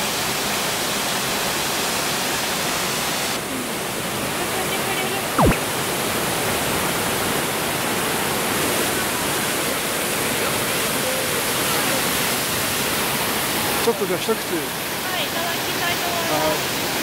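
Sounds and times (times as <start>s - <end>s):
tone sweeping down in pitch: 5.4s - 5.7s.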